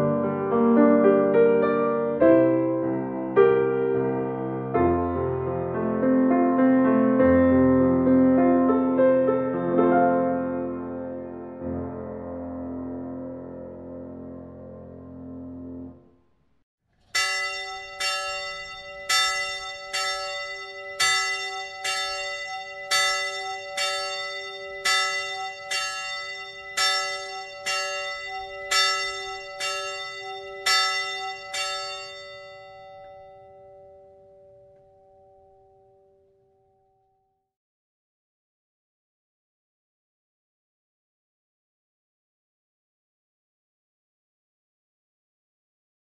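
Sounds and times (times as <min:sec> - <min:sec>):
church bell ringing: 0:17.0 - 0:37.1.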